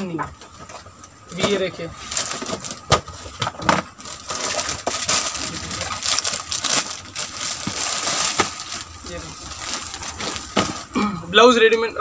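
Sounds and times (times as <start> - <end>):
plastic packaging crinkling: 1.4 - 10.9.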